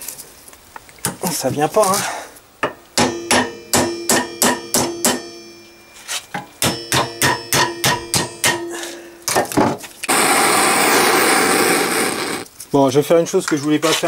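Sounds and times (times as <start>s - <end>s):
hammer striking metal pliers: 2.6s - 9.7s
blowtorch flame hissing: 10.0s - 12.5s.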